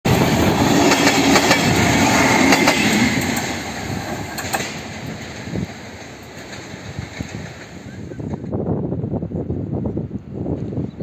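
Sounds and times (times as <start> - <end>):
train rumbling along track: 0.1 - 11.0
wheels clicking over rail joints: 0.8 - 8.5.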